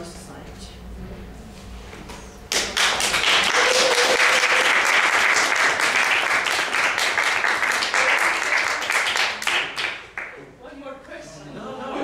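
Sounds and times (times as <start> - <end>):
audience applauding: 2.5 - 10.4.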